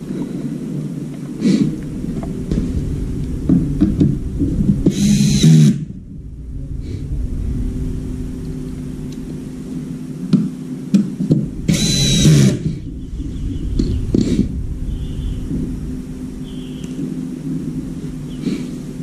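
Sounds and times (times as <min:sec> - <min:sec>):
steady low hum: 0:00.0 - 0:19.0
cordless drill running: 0:04.9 - 0:05.8, 0:11.7 - 0:12.6.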